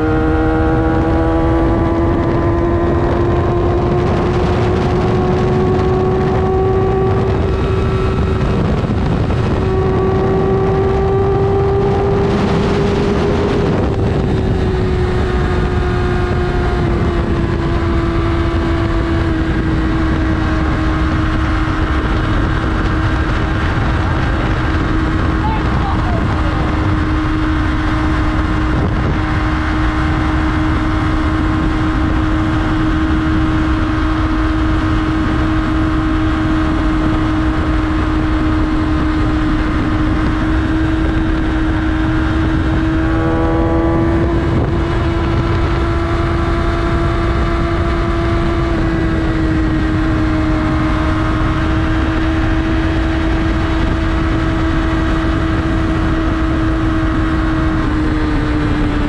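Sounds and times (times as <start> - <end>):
motorcycle engine cruising: 0.0 - 59.0
wind on microphone: 0.0 - 59.0
stepped tone falling in pitch: 42.8 - 45.3.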